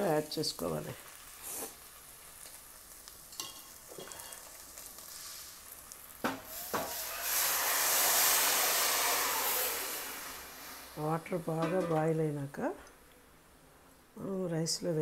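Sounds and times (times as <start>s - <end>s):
water hissing in hot oil: 0.0s - 11.6s
oil sizzling softly: 0.0s - 15.0s.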